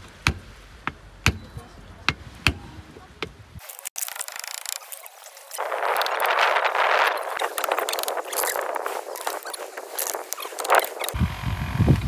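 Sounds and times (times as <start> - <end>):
axe chopping wood: 0.2 - 1.5.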